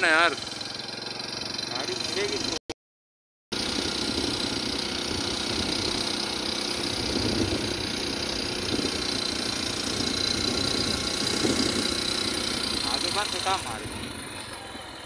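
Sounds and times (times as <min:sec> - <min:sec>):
vehicle engine hum: 0:00.0 - 0:02.8, 0:03.5 - 0:15.0
road and wind noise: 0:03.6 - 0:15.0.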